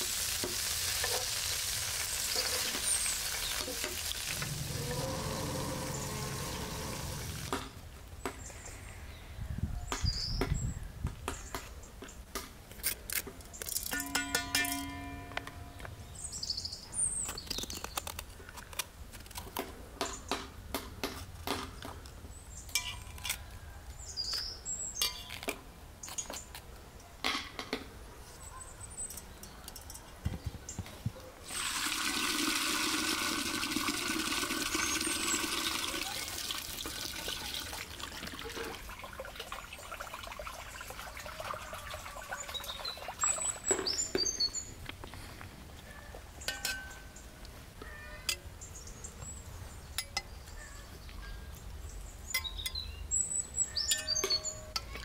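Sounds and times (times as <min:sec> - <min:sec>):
water running and splashing: 0:00.0 - 0:07.6, 0:31.5 - 0:44.1.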